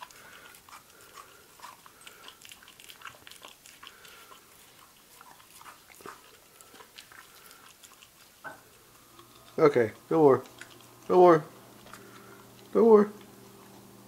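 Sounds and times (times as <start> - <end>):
dog chewing melon: 0.0 - 14.0.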